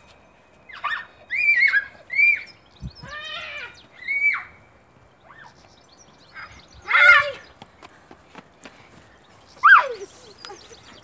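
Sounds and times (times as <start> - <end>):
high-pitched playful squeals: 0.7 - 4.6.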